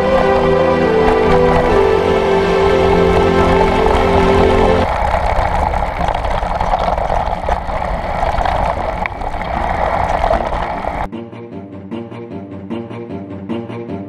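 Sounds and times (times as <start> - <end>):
bike tyre noise on dirt: 0.0 - 11.1
wind rushing: 0.0 - 11.1.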